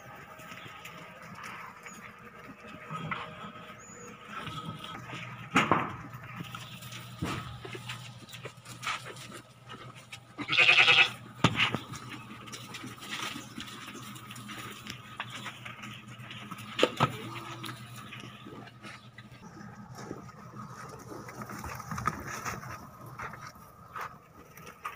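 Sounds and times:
steady low hum: 0.0 - 24.9
sheep bleating: 10.4 - 11.2.

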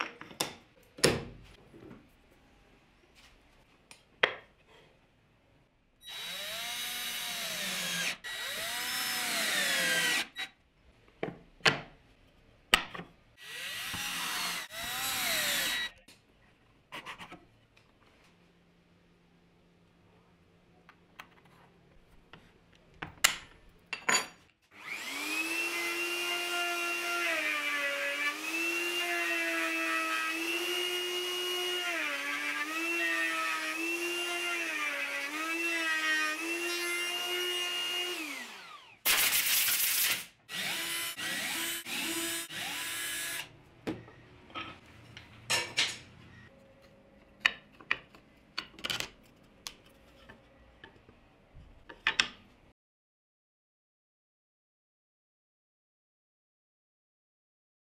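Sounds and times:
router whining: 6.1 - 10.5, 13.4 - 16.0, 24.8 - 39.0, 40.5 - 43.5.

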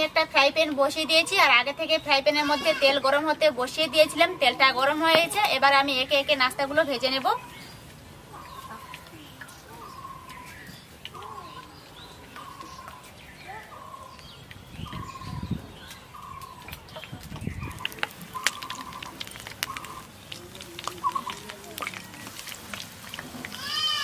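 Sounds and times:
food crackling in hot oil: 15.9 - 24.0.

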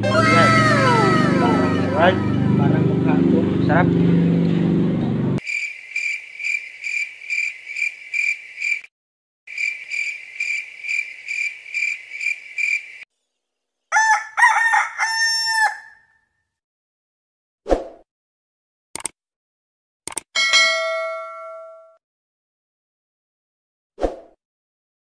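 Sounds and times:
rooster crowing: 0.0 - 2.6, 13.9 - 16.2
cricket chirping: 5.4 - 8.9, 9.5 - 13.0.

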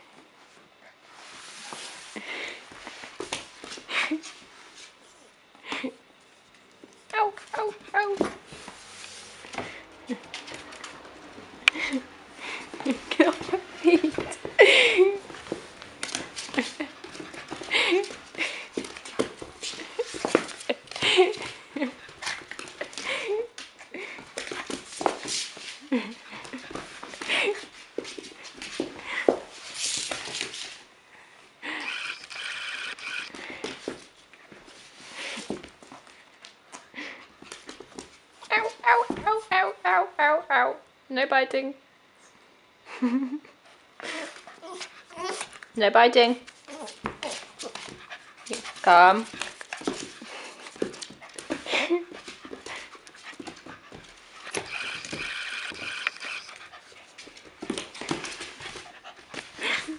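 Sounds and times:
puppy squealing: 31.8 - 33.3, 54.5 - 56.6
puppy claws on wooden floor: 46.4 - 59.5.

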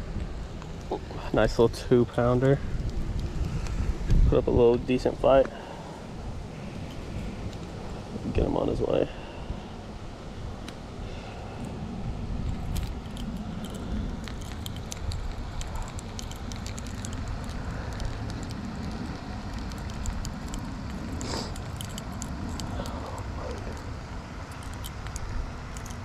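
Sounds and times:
low steady rumble: 0.0 - 26.0
fishing hooks clicking and jingling: 12.5 - 23.9, 24.5 - 26.0.

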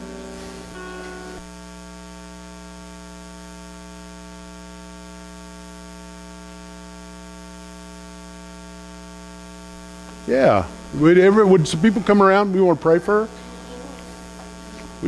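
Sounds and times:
held guitar notes: 0.0 - 1.5
electrical mains hum: 0.0 - 15.0.

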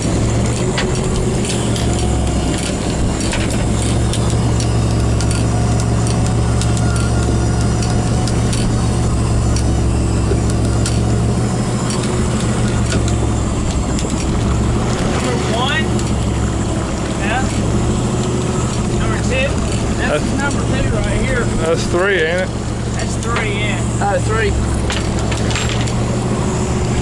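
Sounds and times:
sharp clicks: 0.0 - 21.2
boat engine droning: 0.0 - 27.0.

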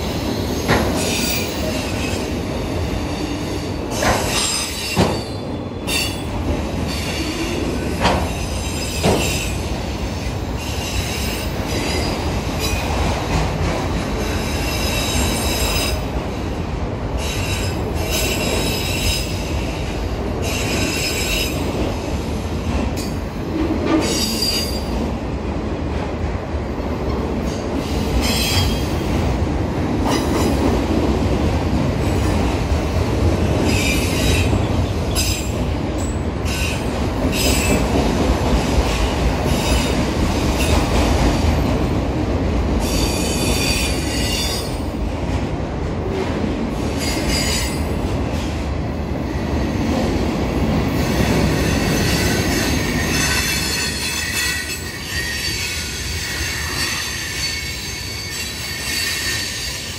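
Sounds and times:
wheels squealing on rail: 0.0 - 13.0, 14.2 - 16.1, 17.2 - 21.8, 23.8 - 25.0, 27.4 - 29.1, 33.6 - 38.0, 38.8 - 41.0, 42.8 - 44.9, 46.7 - 48.5, 51.0 - 59.9
freight train rolling: 0.0 - 59.9.

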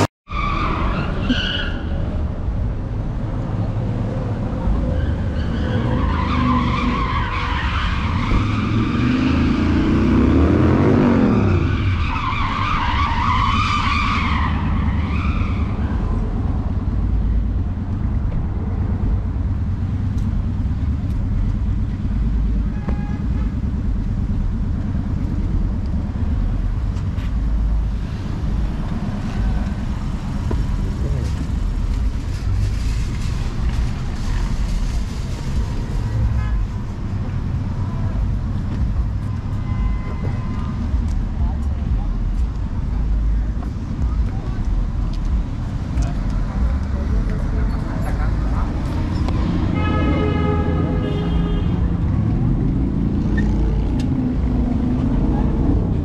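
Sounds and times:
street traffic rumble: 0.0 - 56.0
tires screeching: 0.0 - 56.0
car engine revving: 8.1 - 12.0.

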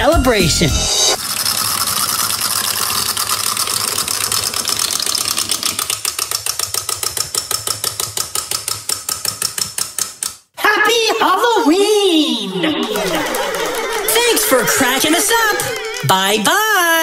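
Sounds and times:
wind-up toy mechanism clicking: 1.2 - 10.3.

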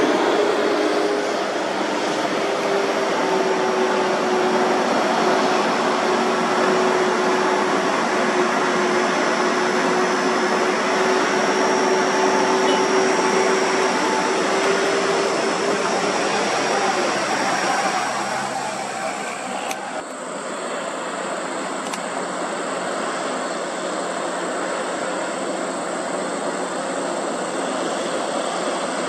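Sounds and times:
tyre and road noise: 0.0 - 20.2
diesel truck engine drone: 0.0 - 29.0.

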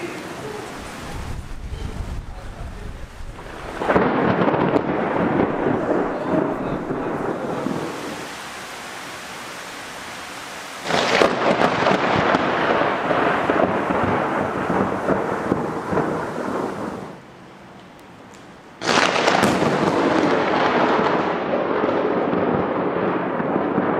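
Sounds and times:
steady rain: 0.0 - 23.9
thunder crack and rumble: 0.8 - 8.3, 10.8 - 17.2, 18.8 - 23.9.

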